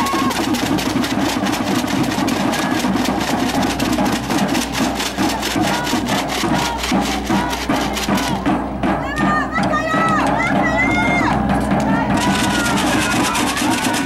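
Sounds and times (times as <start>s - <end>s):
fast rattling clatter: 0.0s - 8.4s, 12.2s - 14.0s.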